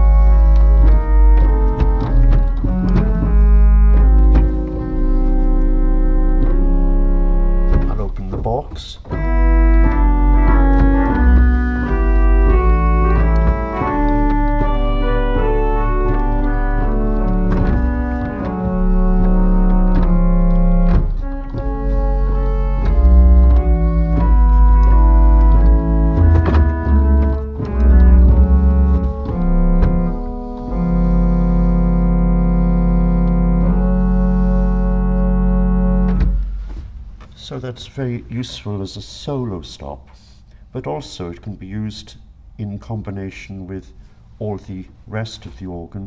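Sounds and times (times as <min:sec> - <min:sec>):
pipe organ playing slow piece: 0:00.0 - 0:36.8.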